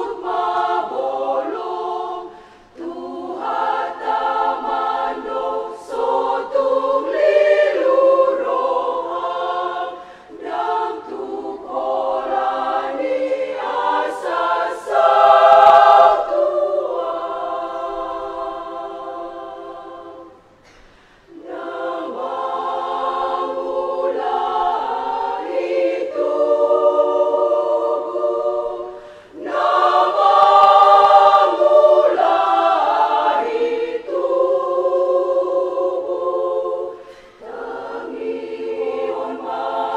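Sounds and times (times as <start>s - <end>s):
women's choir singing: 0.0s - 39.9s.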